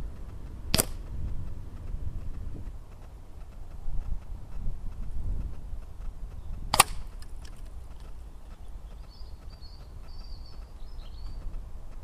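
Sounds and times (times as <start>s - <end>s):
low wind rumble: 0.0s - 12.0s
air rifle shot crack: 0.7s - 1.1s, 6.7s - 7.2s
bird chirping faintly: 7.8s - 11.6s.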